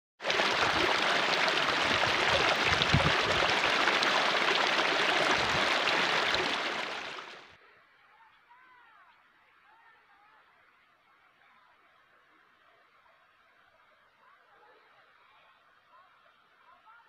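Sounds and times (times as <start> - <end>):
stream rushing over rocks: 0.2 - 7.4.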